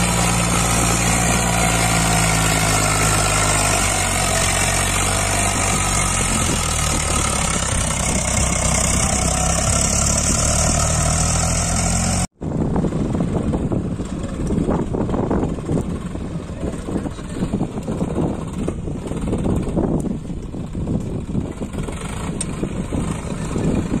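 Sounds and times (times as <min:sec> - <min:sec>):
rough rushing noise: 0:00.0 - 0:24.0
tractor diesel engine labouring: 0:00.0 - 0:24.0.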